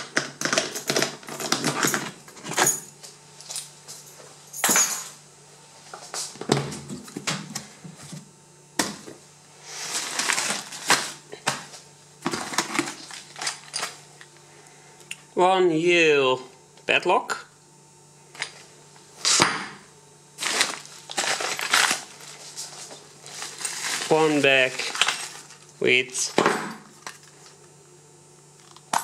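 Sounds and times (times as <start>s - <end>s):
plastic bags rustling: 9.7s - 14.0s, 20.4s - 25.8s.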